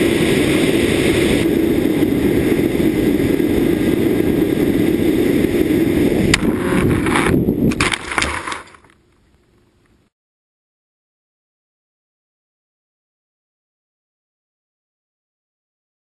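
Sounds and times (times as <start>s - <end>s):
wind rushing past camera: 0.0s - 8.8s
electric motor and propeller: 0.0s - 10.0s
plane crashing knocks and scrapes: 6.3s - 8.9s
sharp crack: 6.3s - 9.0s.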